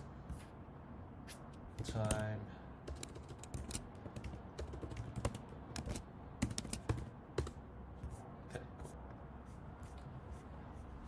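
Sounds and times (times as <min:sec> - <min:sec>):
typing on keyboard: 0:01.7 - 0:02.3, 0:02.9 - 0:07.6.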